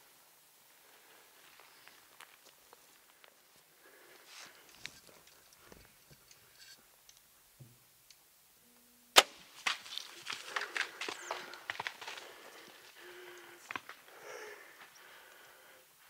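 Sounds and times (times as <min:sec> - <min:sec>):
elk running through brush: 0:09.4 - 0:14.1.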